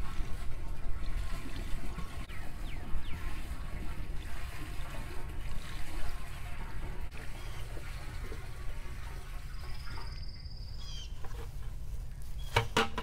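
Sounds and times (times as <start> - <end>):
water splashing through funnel: 0.0 - 10.4
bird call: 9.5 - 11.3.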